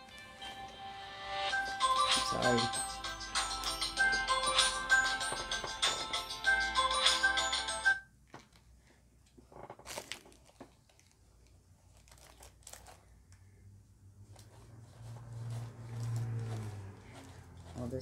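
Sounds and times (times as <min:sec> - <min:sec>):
phone ringtone melody: 0:00.0 - 0:08.1
tissue paper rustling: 0:11.8 - 0:13.1, 0:14.4 - 0:18.0.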